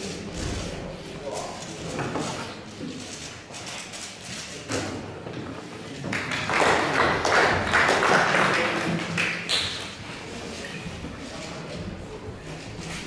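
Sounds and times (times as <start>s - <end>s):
audience applauding: 6.1s - 10.0s.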